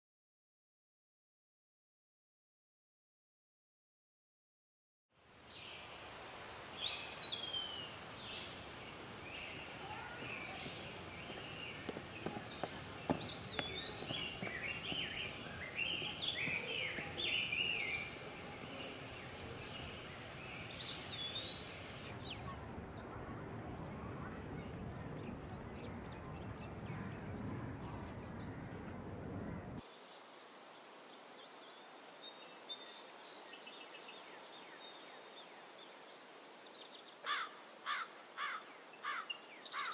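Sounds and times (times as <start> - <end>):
steady background noise: 5.2 - 32.2
birds calling: 6.6 - 29.8, 37.2 - 39.9.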